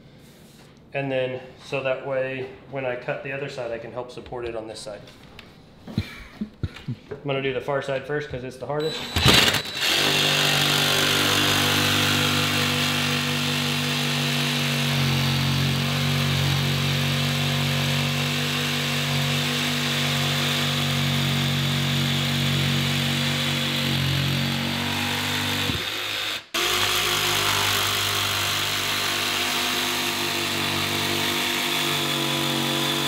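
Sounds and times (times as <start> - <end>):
jigsaw cutting countertop: 8.9 - 33.0.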